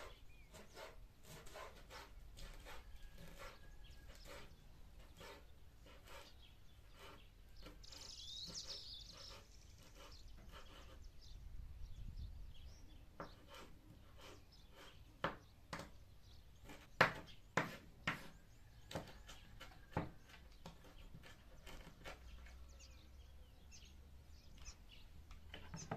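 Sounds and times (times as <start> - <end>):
knife chopping on cutting board: 17.0 - 18.3.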